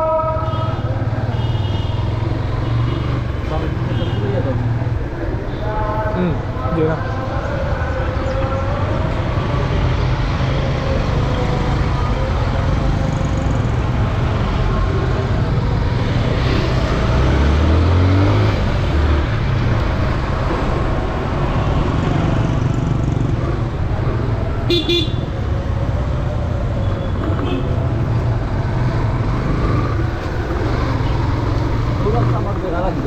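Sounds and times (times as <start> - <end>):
motorcycle engine: 7.7 - 33.0.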